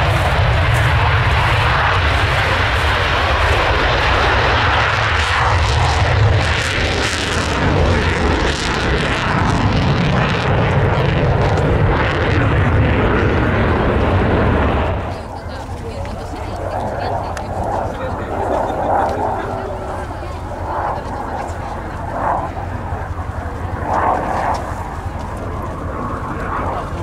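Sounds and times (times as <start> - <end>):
jet engines roaring with crackle: 0.0 - 27.0.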